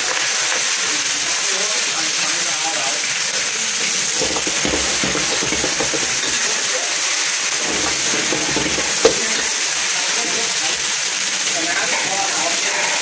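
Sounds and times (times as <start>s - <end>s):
greens sizzling in a wok: 0.0s - 13.0s.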